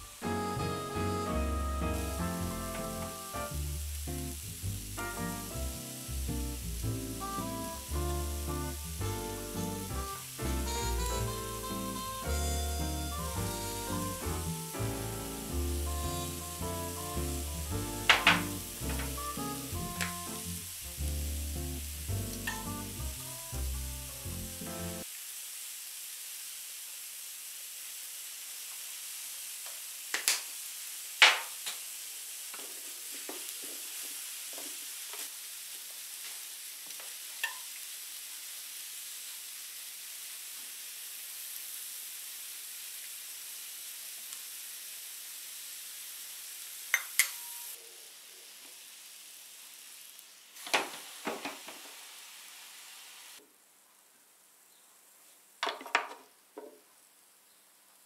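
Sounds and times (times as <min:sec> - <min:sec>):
vegetables sizzling on a grill: 0:00.0 - 0:53.5
grill lid clattering: 0:22.4 - 0:22.8.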